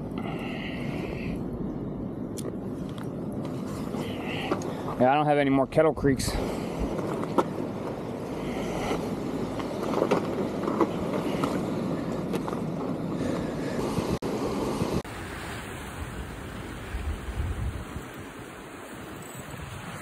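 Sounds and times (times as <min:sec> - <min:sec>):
wind buffeting microphone: 0:05.9 - 0:20.0
surf washing against rocks: 0:14.4 - 0:20.0.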